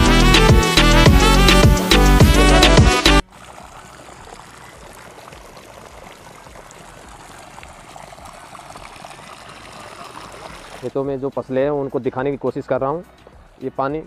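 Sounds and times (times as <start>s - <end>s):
music: 0.0s - 3.2s, 10.9s - 14.0s
water pouring from pipe: 3.2s - 11.0s
water flowing in furrows: 3.2s - 14.0s.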